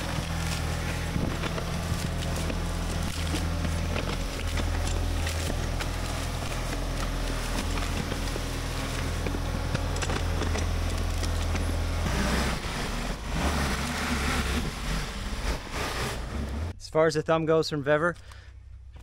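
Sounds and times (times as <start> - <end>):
branches cracking and snapping: 0.0 - 15.0
backhoe engine running: 0.0 - 16.7.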